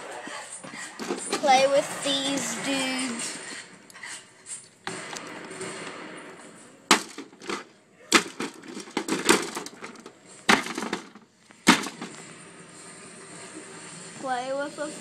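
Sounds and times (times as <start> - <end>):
plastic figures clacking together: 6.9 - 12.2.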